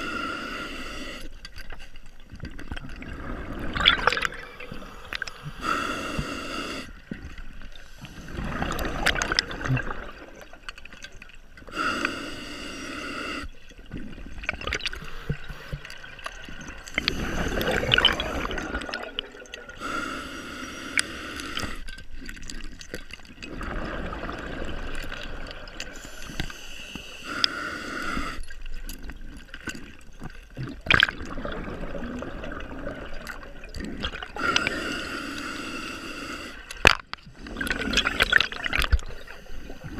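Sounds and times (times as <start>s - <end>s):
regulator hissing inhale: 0.0s - 1.4s, 4.6s - 8.7s, 11.6s - 13.6s, 16.8s - 18.9s, 19.7s - 21.9s, 25.9s - 28.6s, 34.3s - 36.8s, 38.0s - 39.9s.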